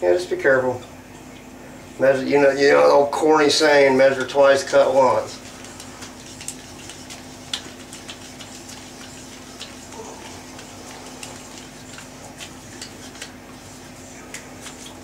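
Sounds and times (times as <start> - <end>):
low electrical hum: 0.0 - 15.0
faint clicks and taps: 5.6 - 13.4.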